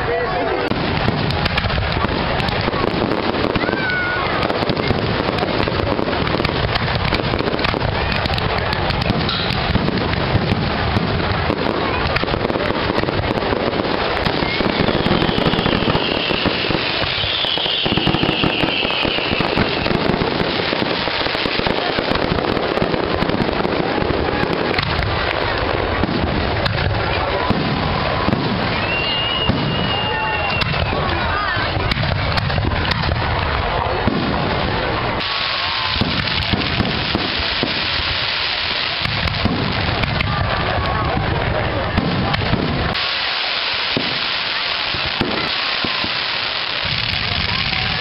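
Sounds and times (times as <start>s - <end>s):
fireworks crackling and banging: 0.0s - 48.0s
high firework whistle: 14.0s - 21.4s, 27.9s - 31.1s, 35.2s - 38.9s, 43.0s - 48.0s.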